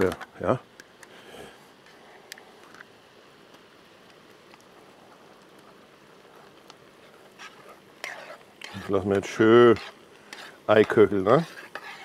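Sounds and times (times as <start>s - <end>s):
sauce sizzling and bubbling in a pan: 0.0s - 12.0s
spoon stirring: 7.0s - 12.0s.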